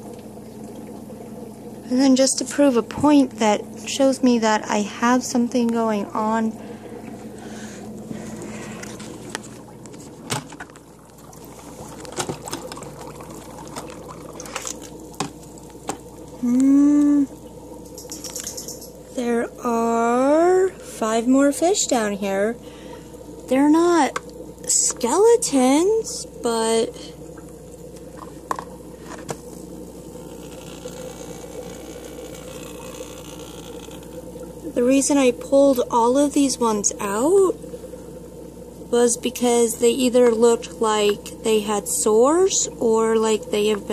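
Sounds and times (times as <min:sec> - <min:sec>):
small motor humming: 0:00.0 - 0:43.9
water bubbling and trickling: 0:00.0 - 0:43.9
person humming: 0:16.4 - 0:17.3.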